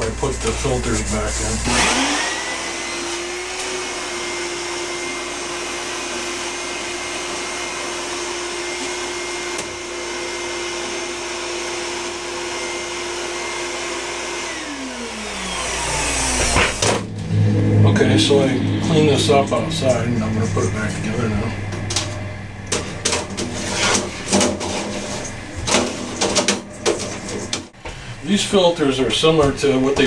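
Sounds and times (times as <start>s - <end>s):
vacuum cleaner whining: 0.0s - 17.2s.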